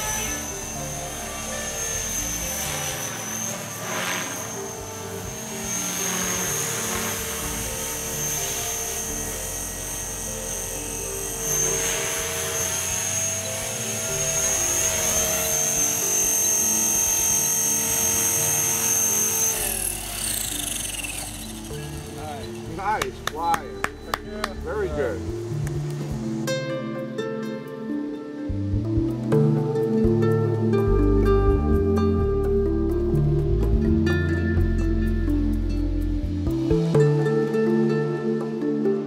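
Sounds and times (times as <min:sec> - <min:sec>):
rc helicopter motor whine: 0:00.0 - 0:26.4
rotor humming: 0:00.0 - 0:39.0.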